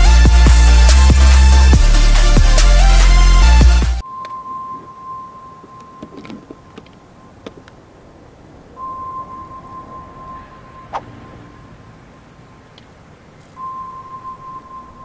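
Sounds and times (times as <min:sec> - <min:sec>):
electronic dance music: 0:00.0 - 0:04.0
faint high-pitched electronic tone: 0:04.0 - 0:07.4, 0:08.8 - 0:11.9, 0:13.5 - 0:15.0.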